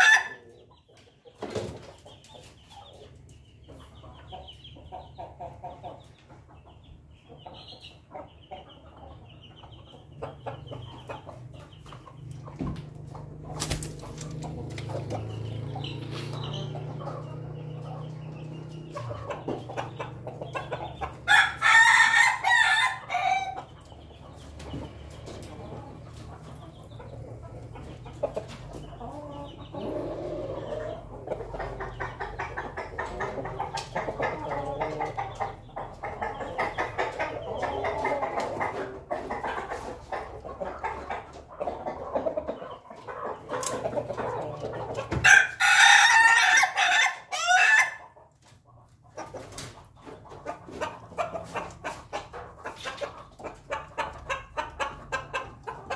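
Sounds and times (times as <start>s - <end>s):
roosters crowing: 0.0s - 0.5s, 21.0s - 23.7s, 29.1s - 31.3s, 44.2s - 48.2s
chickens clucking: 0.0s - 55.9s.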